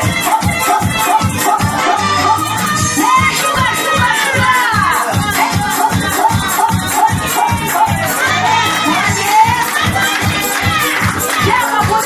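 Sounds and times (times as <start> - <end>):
dance music over loudspeakers: 0.0 - 12.0
woman singing: 0.0 - 12.0
hands clapping along: 3.3 - 12.0.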